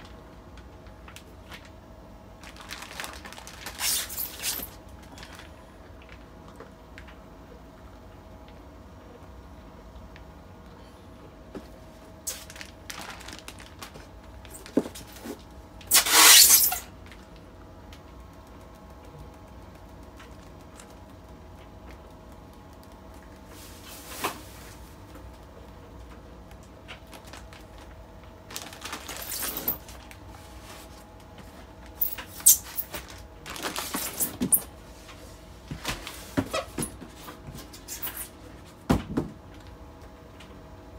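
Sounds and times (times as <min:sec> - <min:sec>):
plastic bags rustling: 0:02.4 - 0:06.2, 0:11.7 - 0:17.4, 0:27.0 - 0:38.4
plastic packaging crinkling: 0:02.4 - 0:06.2, 0:12.2 - 0:17.4, 0:26.9 - 0:31.0, 0:31.9 - 0:34.7
styrofoam box squeaks and knocks: 0:03.8 - 0:04.7, 0:15.9 - 0:16.9.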